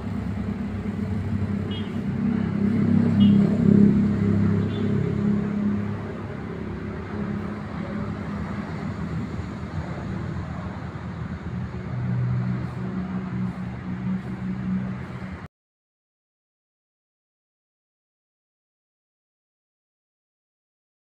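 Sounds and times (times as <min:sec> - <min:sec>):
vehicle engines humming: 0:00.0 - 0:15.5.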